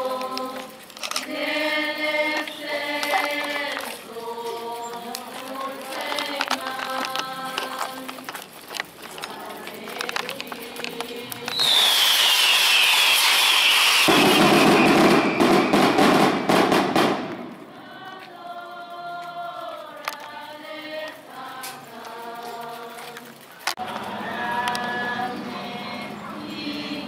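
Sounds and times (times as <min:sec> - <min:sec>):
people singing: 0:00.0 - 0:12.8, 0:17.4 - 0:27.0
fireworks hissing and crackling: 0:00.0 - 0:18.4
falling whistle: 0:11.5 - 0:16.0.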